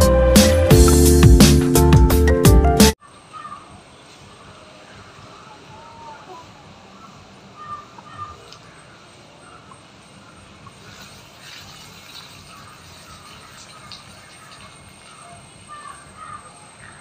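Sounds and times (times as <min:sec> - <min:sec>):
birds chirping: 0:03.0 - 0:17.0
water splashing onto ground: 0:10.7 - 0:16.0.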